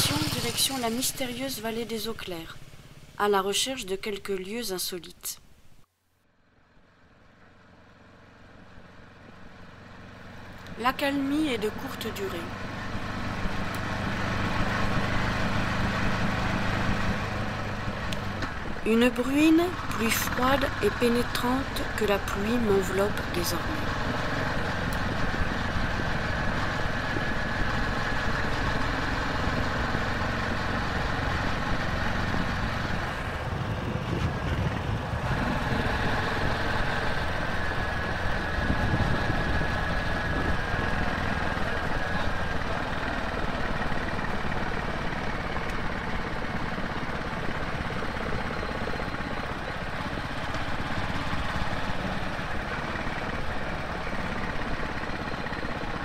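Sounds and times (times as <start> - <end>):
motorcycle engine running: 0.0 - 3.2, 6.6 - 56.0
road and wind noise: 0.0 - 56.0.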